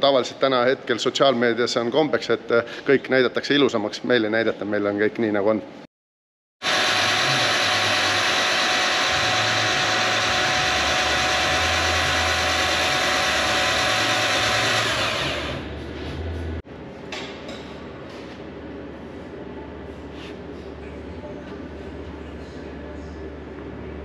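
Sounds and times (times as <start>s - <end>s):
starter motor cranking engine: 6.6s - 15.7s
workshop noise with light clicks: 15.6s - 22.7s.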